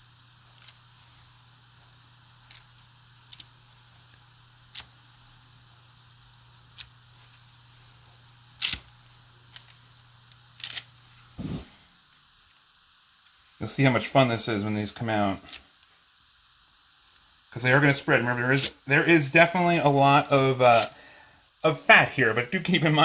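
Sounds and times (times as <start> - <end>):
steady low hum: 0.0 - 23.0.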